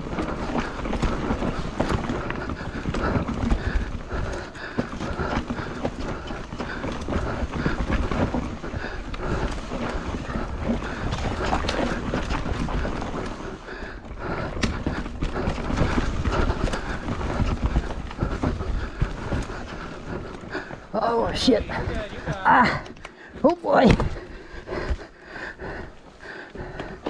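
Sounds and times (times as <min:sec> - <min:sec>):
mountain bike rattling on trail: 0:00.0 - 0:27.0.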